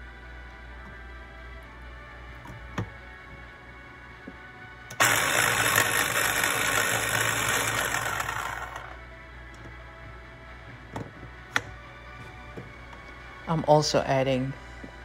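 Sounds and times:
electric food chopper motor: 4.9 - 9.0.

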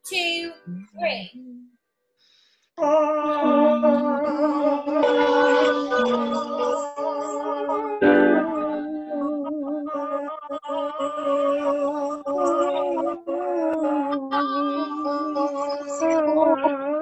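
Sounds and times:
choir holding a chord: 5.0 - 6.9, 8.0 - 8.6
piano chord: 8.0 - 8.6.

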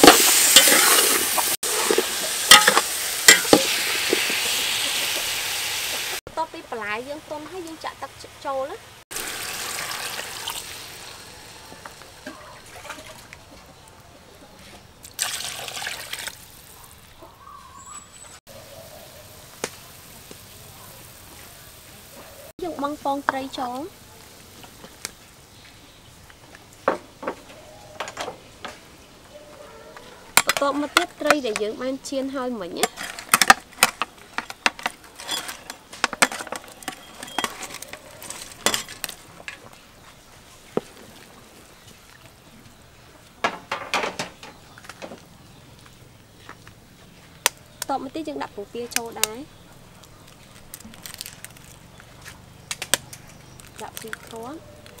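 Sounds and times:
metal spoon scraping metal tray: 0.0 - 3.7
soup boiling hiss: 0.0 - 12.3, 18.5 - 26.9
water splashing into metal pot: 9.1 - 11.2, 15.0 - 16.6
water trickles and knocks: 43.4 - 45.3.

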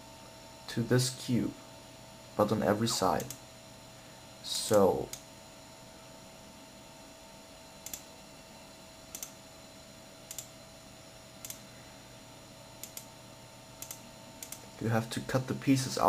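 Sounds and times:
faint steady hum: 0.0 - 16.0
computer mouse clicking: 3.2 - 3.4, 7.8 - 8.1, 9.1 - 9.4, 10.3 - 10.5, 12.8 - 13.1, 13.8 - 14.6.

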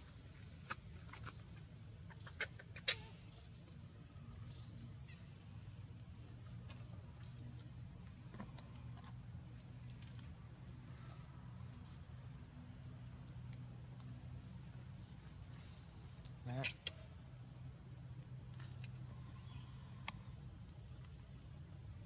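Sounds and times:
insects droning: 0.0 - 22.0
faint ticks: 13.4 - 14.2, 20.0 - 21.2.

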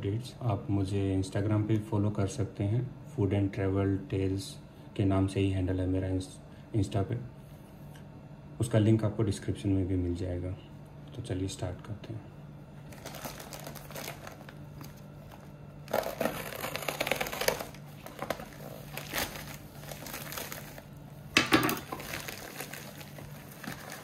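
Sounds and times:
plastic bag crinkling and tearing: 12.8 - 24.0.

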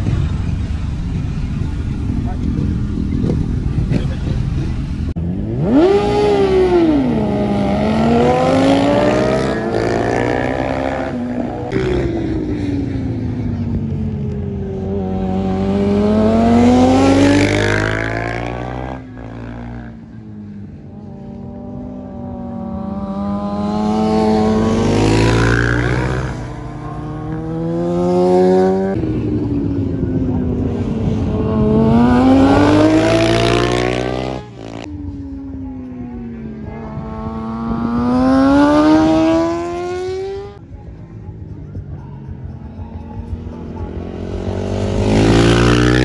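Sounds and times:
racing motorcycles passing: 0.0 - 46.0.

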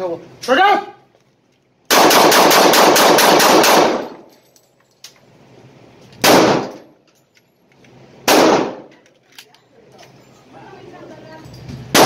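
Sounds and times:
pistol shots echoing indoors: 1.9 - 4.3, 6.2 - 6.9, 8.3 - 8.9.

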